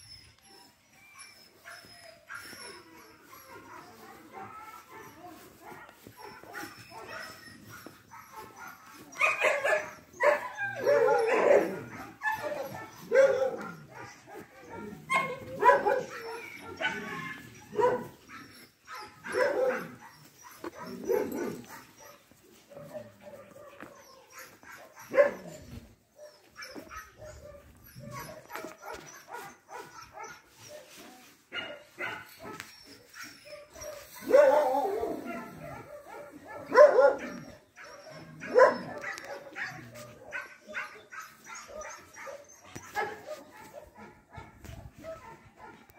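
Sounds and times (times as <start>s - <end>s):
dog whining: 0.0s - 5.5s, 23.8s - 30.8s
dogs barking and yipping: 0.0s - 45.9s.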